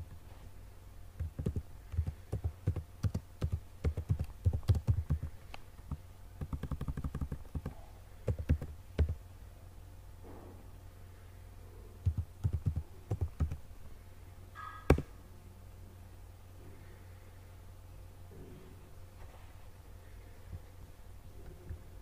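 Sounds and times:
typing on computer keyboard: 1.2s - 5.3s, 5.9s - 9.2s, 12.0s - 13.6s.

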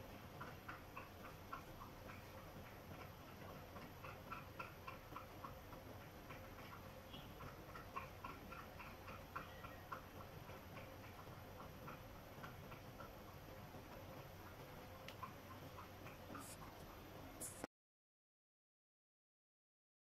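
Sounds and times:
low room hiss: 8.2s - 17.7s.

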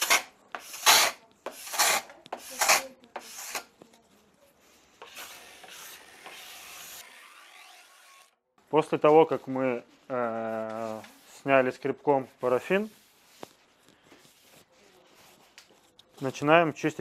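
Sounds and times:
scraper scraping ski base: 0.0s - 3.8s, 4.7s - 8.3s.

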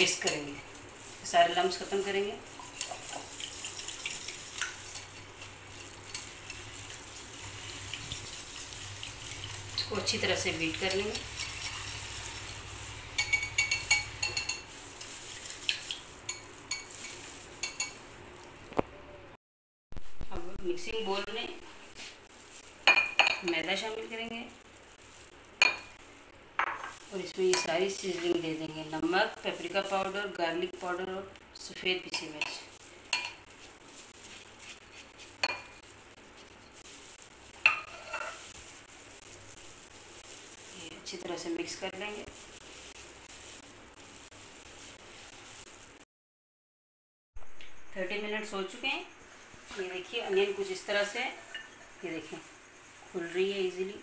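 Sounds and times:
spatula scraping dry flour: 0.0s - 18.0s, 21.8s - 24.4s, 32.1s - 45.8s
whisk clinking against glass bowl: 13.1s - 18.0s, 35.4s - 35.8s, 37.6s - 38.5s.

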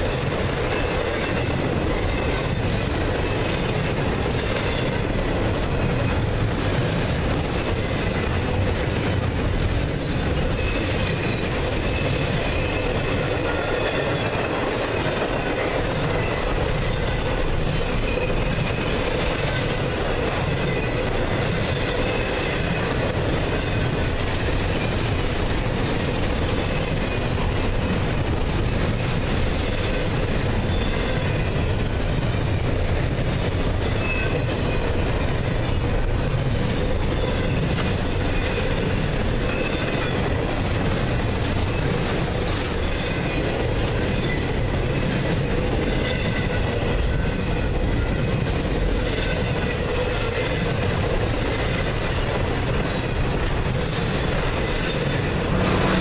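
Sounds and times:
steel wheels rumbling on rail: 0.0s - 56.0s
high wheel squeals: 54.3s - 56.0s.

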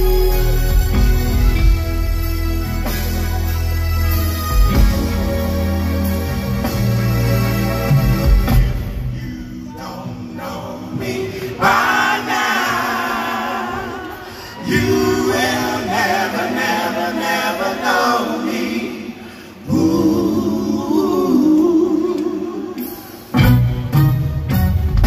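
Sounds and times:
male vocal group singing harmony: 9.0s - 23.1s.

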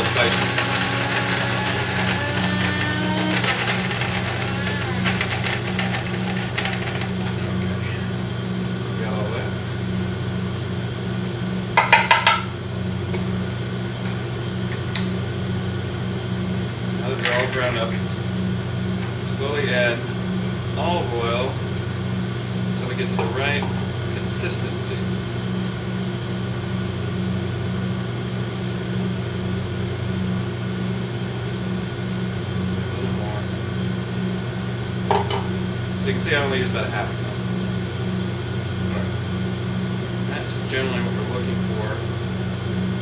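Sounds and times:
machinery humming: 0.0s - 11.8s
low hum of kitchen machinery: 0.0s - 43.0s.

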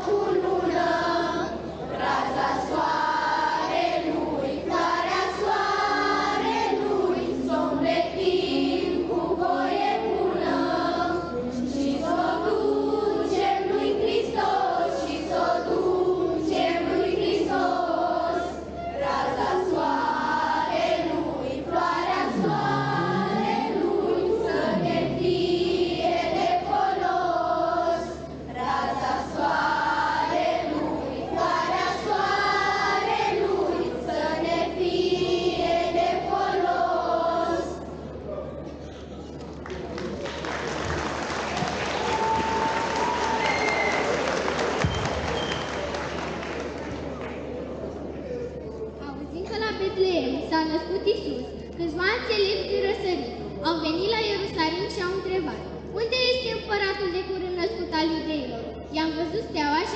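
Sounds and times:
children's choir singing: 0.0s - 38.3s.

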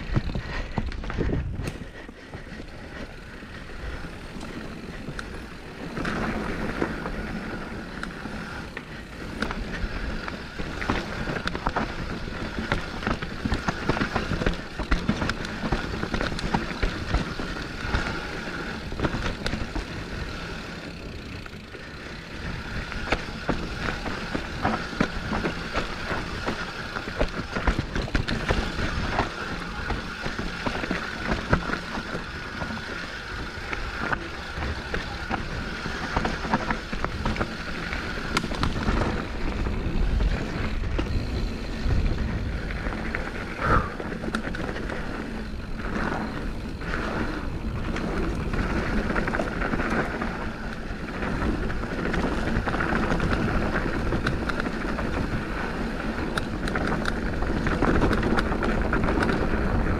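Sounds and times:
mountain bike clattering: 0.0s - 59.9s.

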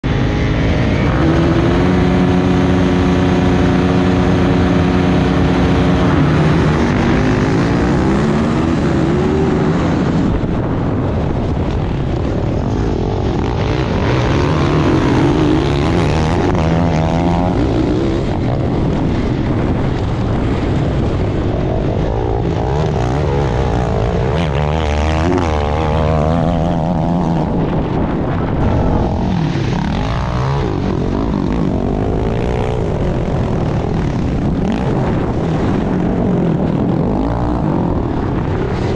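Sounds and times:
multi-tone engine drone: 0.0s - 38.9s
rush of riding noise: 0.0s - 38.9s.

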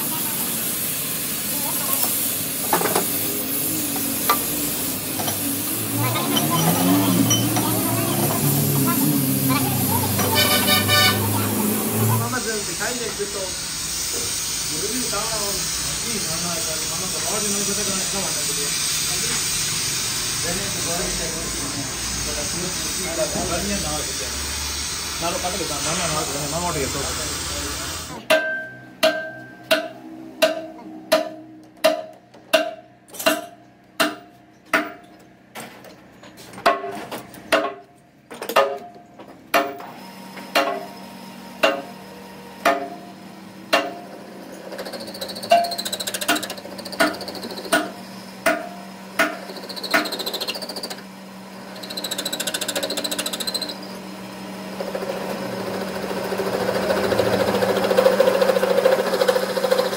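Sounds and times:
turning tool scraping metal: 6.1s - 8.3s, 44.6s - 48.0s, 49.2s - 51.0s, 51.6s - 54.0s
mallet knocking on steel bar: 28.3s - 35.0s, 47.0s - 49.4s
lathe humming: 49.1s - 59.9s.

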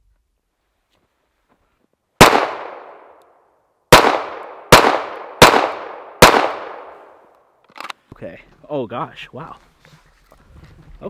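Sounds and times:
pistol shots with echo: 2.2s - 3.1s, 3.9s - 7.2s.

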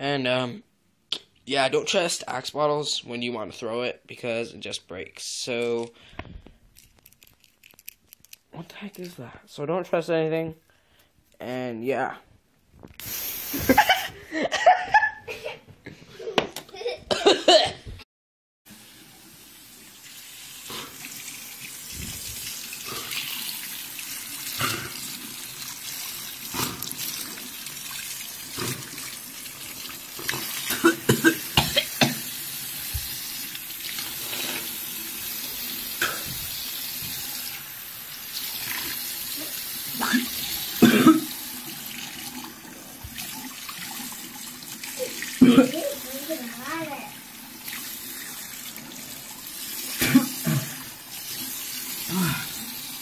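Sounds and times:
person coughing: 17.1s - 17.8s, 30.7s - 32.2s, 40.0s - 41.3s, 45.4s - 45.8s, 50.0s - 50.8s, 52.1s - 52.5s
person spitting: 24.6s - 25.0s, 26.5s - 26.9s, 40.0s - 41.3s.

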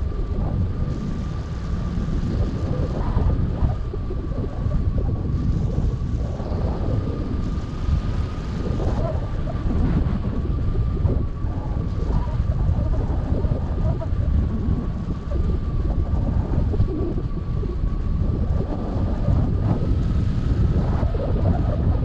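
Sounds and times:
wind noise on microphone: 0.0s - 22.0s.

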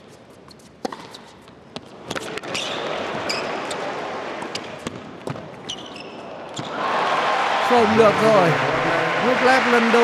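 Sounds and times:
shoe squeaks on court: 2.1s - 3.8s, 5.6s - 6.7s
arena crowd noise: 6.2s - 10.0s.

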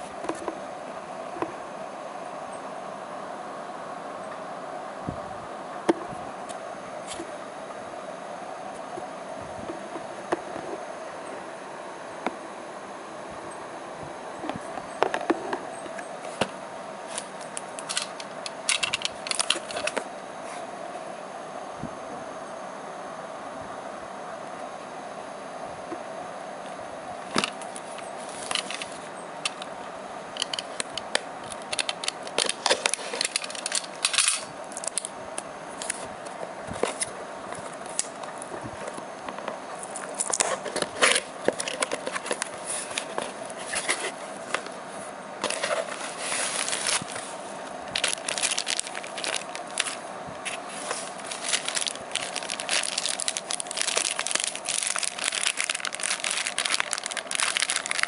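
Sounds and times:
plastic bag crinkling: 17.8s - 20.0s, 31.5s - 35.1s, 45.4s - 58.0s.

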